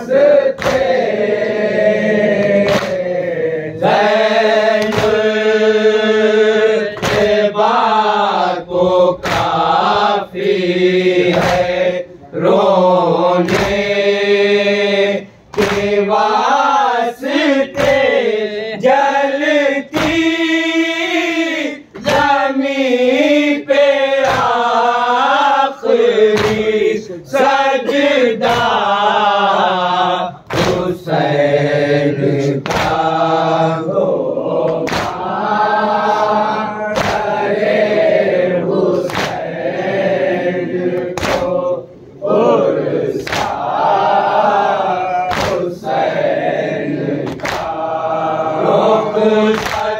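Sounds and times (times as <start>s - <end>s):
men chanting in unison: 0.0s - 49.9s
hands slapping chests: 0.5s - 1.1s, 2.2s - 3.2s, 4.7s - 5.4s, 6.8s - 7.5s, 9.2s - 9.9s, 11.2s - 12.0s, 13.4s - 14.0s, 15.5s - 16.1s, 17.7s - 18.2s, 19.9s - 20.4s, 22.0s - 22.4s, 24.2s - 24.6s, 26.3s - 26.8s, 27.8s - 28.9s, 30.5s - 31.0s, 32.6s - 33.1s, 34.7s - 35.4s, 36.9s - 37.4s, 39.0s - 39.5s, 41.0s - 41.6s, 43.2s - 43.7s, 45.2s - 45.8s, 47.2s - 47.8s, 49.5s - 49.9s.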